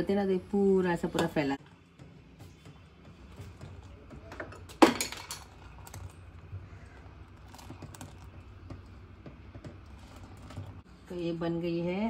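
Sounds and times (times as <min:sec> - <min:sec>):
ladle stirring in a steel pot: 0:01.9 - 0:10.9.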